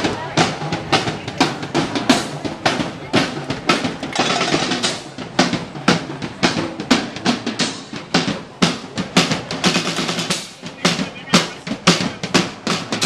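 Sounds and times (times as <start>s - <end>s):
bass drum and snare beat: 0.0s - 13.0s.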